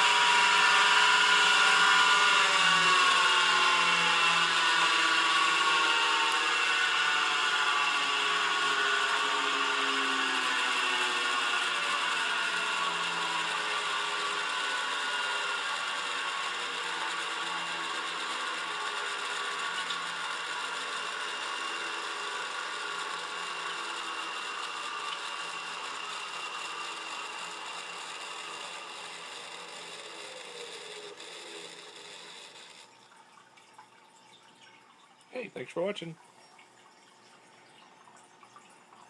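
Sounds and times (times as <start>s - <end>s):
hard drive winding down whine: 0.0s - 32.9s.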